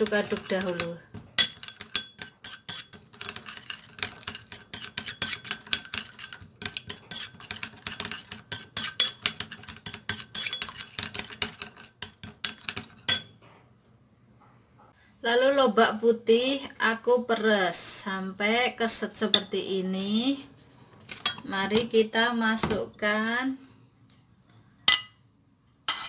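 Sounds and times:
spoon stirring in ceramic bowl: 0.0 - 13.7, 20.8 - 22.0.

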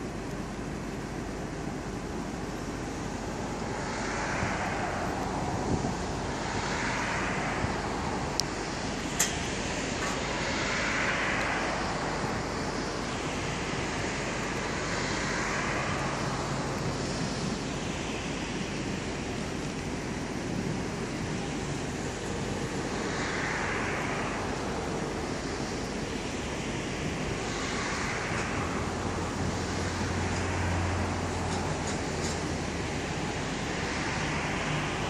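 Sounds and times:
road traffic noise: 0.0 - 35.0
vehicles swishing past: 0.6 - 35.0.

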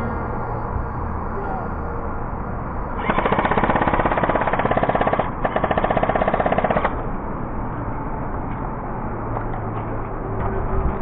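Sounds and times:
airsoft gun full-auto bursts: 3.0 - 7.0.

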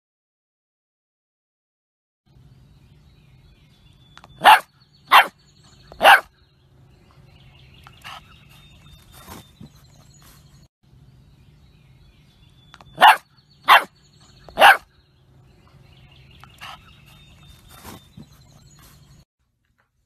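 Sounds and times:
puppy barking: 4.3 - 6.3, 12.9 - 14.9.

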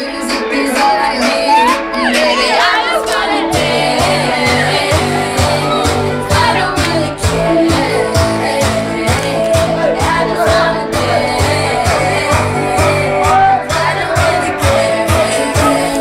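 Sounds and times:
pop dance music with singing: 0.0 - 16.0
heavy bass beat: 0.2 - 16.0.

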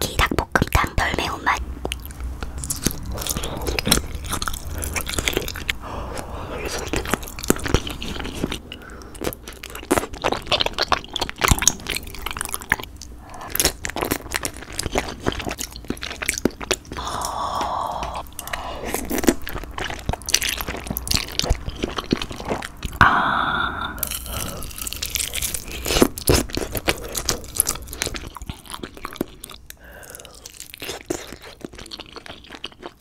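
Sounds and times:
close chewing mouth sounds: 0.0 - 23.0, 24.0 - 33.0.

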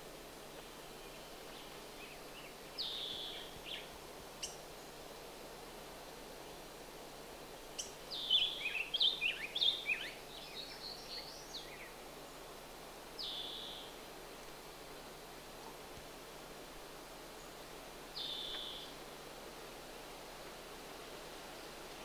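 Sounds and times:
background hiss: 0.0 - 22.0
songbird whistling: 18.2 - 18.9.

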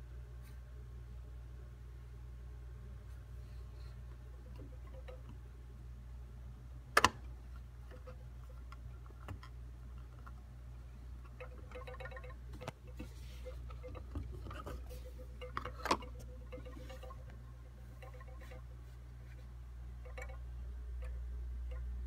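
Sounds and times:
steady low hum: 0.0 - 22.0
vinyl record handling clicks: 7.0 - 7.2.

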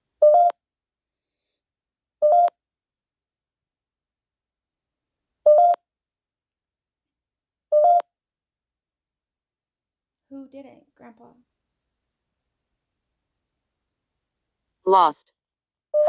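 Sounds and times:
short electronic beeps: 2.2 - 2.5, 5.5 - 5.8, 7.7 - 8.0.

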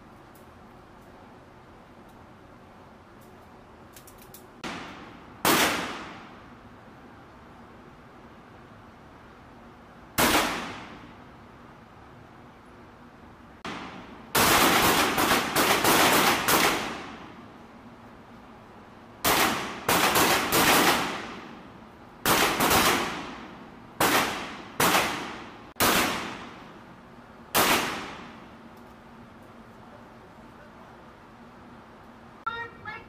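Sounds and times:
pistol shots with echo: 4.6 - 6.3, 22.2 - 26.6, 27.6 - 28.4.

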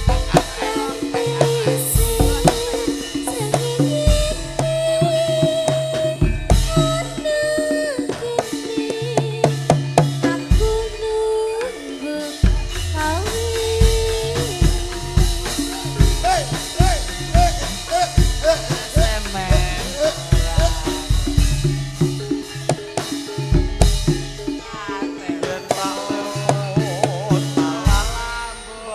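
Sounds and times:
woman singing into microphone: 0.0 - 21.4
drums beating: 0.0 - 28.9.

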